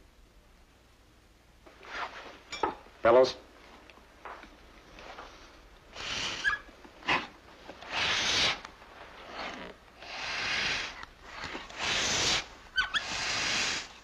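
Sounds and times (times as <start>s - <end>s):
hand pump air hissing: 5.9s - 6.7s, 7.8s - 8.6s, 9.4s - 14.0s.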